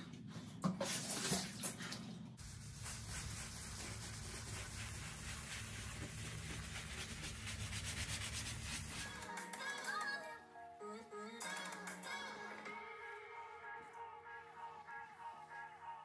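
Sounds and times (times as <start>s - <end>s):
low hum: 2.4s - 9.2s
sponge scrubbing stone: 2.4s - 9.2s.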